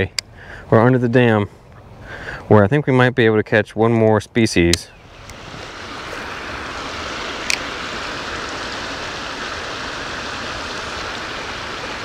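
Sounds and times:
water pouring over spillway: 0:05.1 - 0:12.0.

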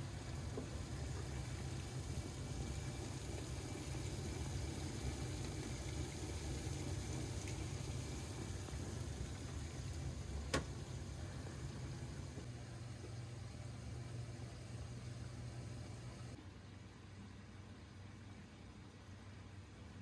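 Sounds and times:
water pouring and splashing: 0:00.0 - 0:11.5.

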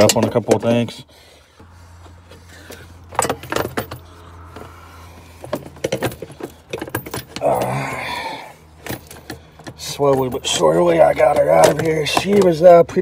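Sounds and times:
low steady hum: 0:00.0 - 0:12.5
plastic duct clicking and rattling: 0:08.8 - 0:13.0.

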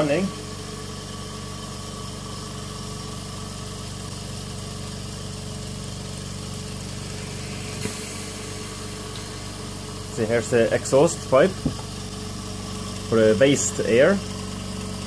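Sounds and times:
compressor humming: 0:00.0 - 0:15.0
click and hiss: 0:06.4 - 0:06.7, 0:07.7 - 0:08.3, 0:09.1 - 0:09.4.

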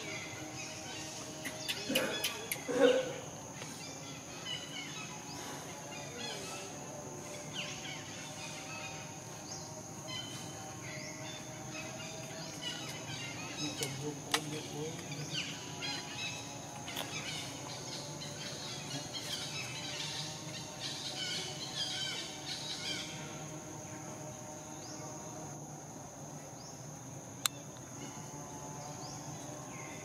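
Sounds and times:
high insect drone: 0:00.0 - 0:30.0
busy chirping calls: 0:00.6 - 0:02.8.

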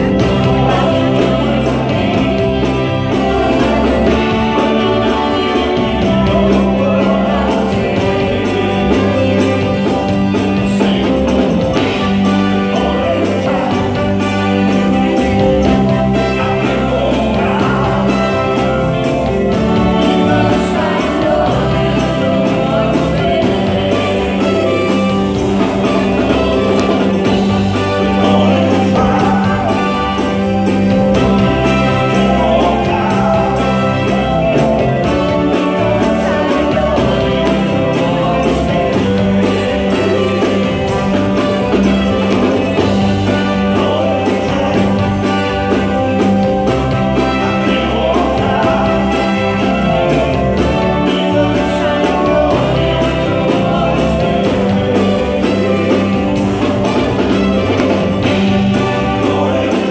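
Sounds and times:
drum kit beat: 0:00.0 - 0:59.9
electric bass guitar: 0:00.0 - 0:59.9
man singing: 0:00.0 - 0:59.9.

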